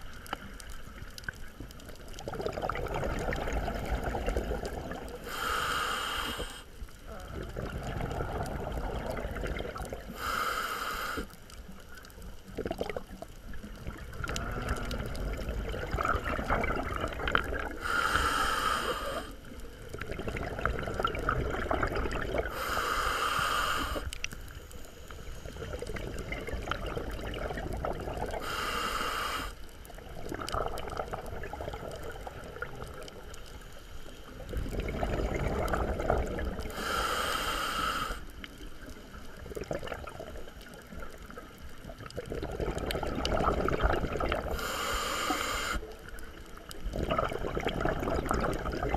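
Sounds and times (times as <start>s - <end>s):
exhaled bubbles rumbling: 0.0s - 5.5s, 6.8s - 10.3s, 11.5s - 18.4s, 19.0s - 22.7s, 25.2s - 28.6s, 29.8s - 33.6s, 34.3s - 37.0s, 38.4s - 44.8s, 45.9s - 48.9s
regulator hissing inhales: 5.2s - 6.8s, 10.1s - 11.4s, 17.8s - 19.5s, 22.5s - 25.5s, 28.4s - 29.7s, 36.7s - 38.9s, 44.5s - 46.0s.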